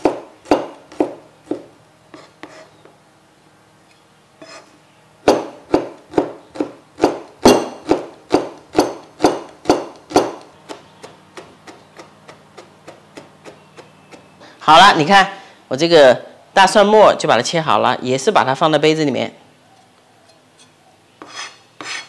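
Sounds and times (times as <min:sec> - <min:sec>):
knife chopping on cutting board: 0:00.0 - 0:02.7, 0:05.3 - 0:14.3.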